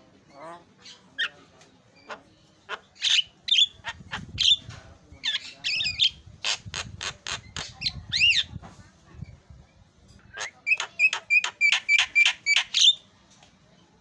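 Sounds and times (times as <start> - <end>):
myna bird calling: 2.0 - 4.6, 10.2 - 13.0.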